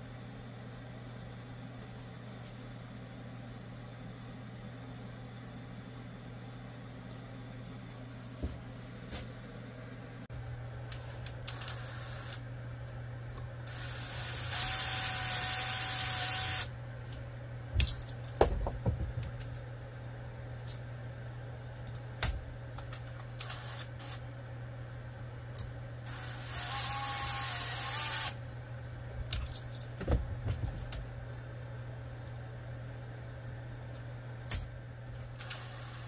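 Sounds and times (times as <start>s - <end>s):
steady low hum: 0.0s - 36.0s
power drill whirring: 13.7s - 16.7s, 26.1s - 28.4s, 35.4s - 36.0s.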